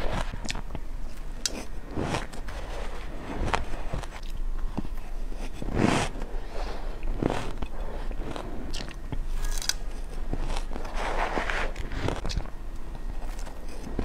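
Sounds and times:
crunching shaved ice: 7.1 - 12.5.

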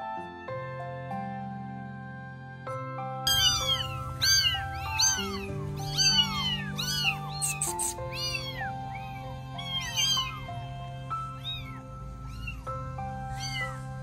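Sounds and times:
soft background music: 0.0 - 14.0
kittens meowing: 3.3 - 14.0.

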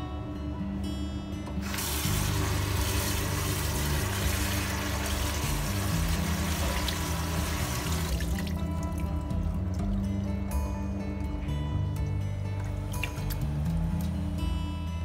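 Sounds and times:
tap water running into steel sink: 1.6 - 9.0
water splashing over rinsed food: 1.7 - 9.2.

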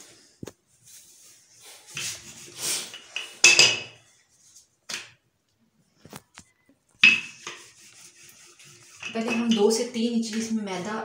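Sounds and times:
rolling pin rubbing dough: 0.7 - 3.2, 7.0 - 10.4.

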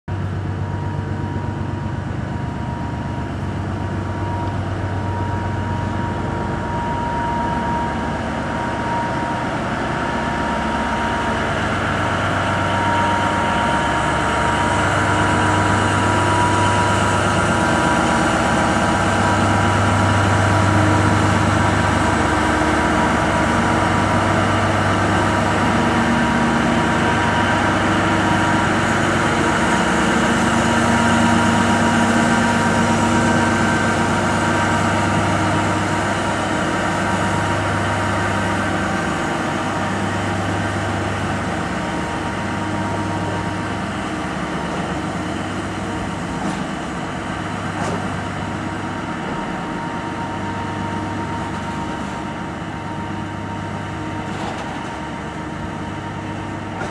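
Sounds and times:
diesel locomotives drone with whine: 0.1 - 56.9.

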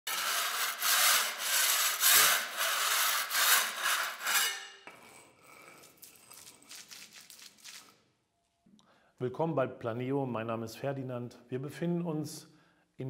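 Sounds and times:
hand scraper rasping on plaster wall: 0.0 - 6.3.

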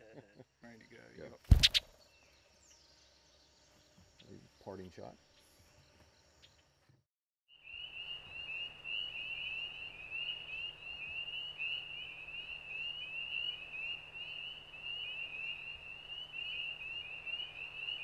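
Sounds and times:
frogs calling: 1.5 - 1.9, 7.6 - 18.0.

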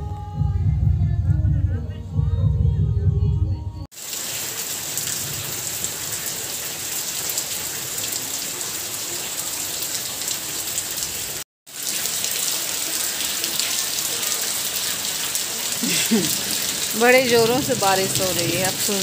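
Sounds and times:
heavy rain on tiled roof: 3.9 - 19.0.

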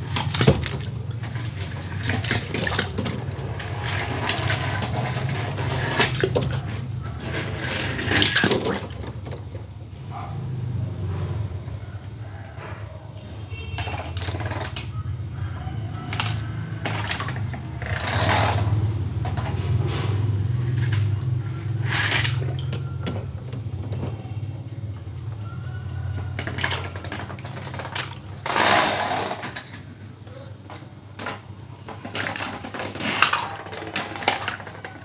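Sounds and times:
toy cars splashing into water: 0.0 - 9.6, 13.6 - 15.0, 16.1 - 18.8, 20.7 - 22.9, 31.3 - 35.0.

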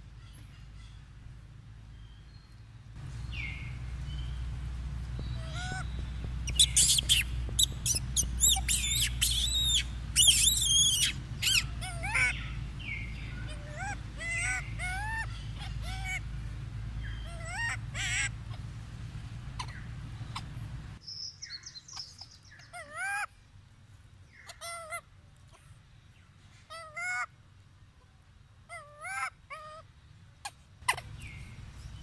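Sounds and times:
baby monkey screaming: 5.3 - 16.2, 17.0 - 18.6, 19.6 - 20.5, 22.0 - 23.3, 24.4 - 25.0, 26.7 - 27.3, 28.7 - 29.8.

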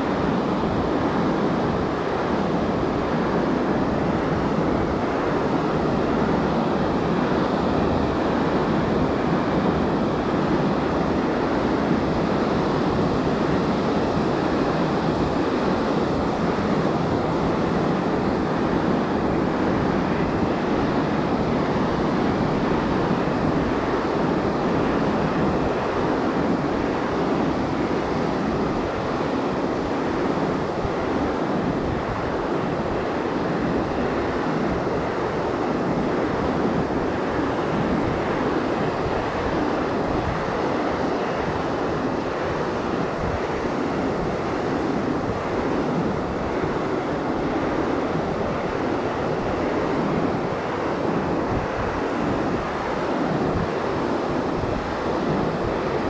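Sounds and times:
surf waves washing on beach: 0.0 - 56.0.

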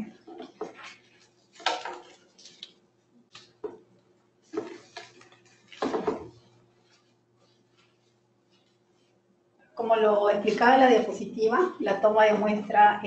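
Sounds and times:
objects knocking on table: 5.8 - 6.4.

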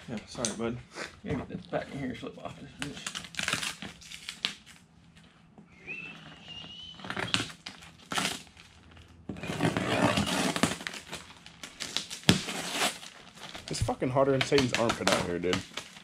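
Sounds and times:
knife cutting packing tape: 2.8 - 4.8, 7.0 - 8.6, 9.3 - 16.0
cardboard scraping and rustling: 6.6 - 16.0.

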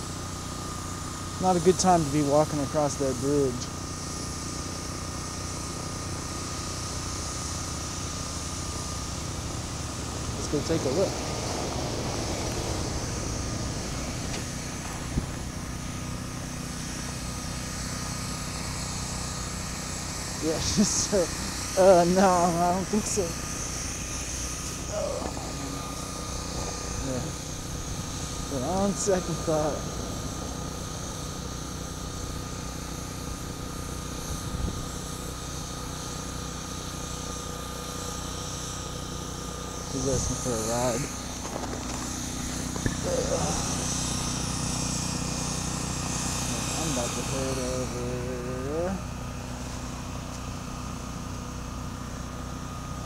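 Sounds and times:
low motor drone: 0.0 - 53.0
vehicle rumbling: 8.5 - 36.2, 39.7 - 51.0
thin high tone: 24.4 - 33.9.

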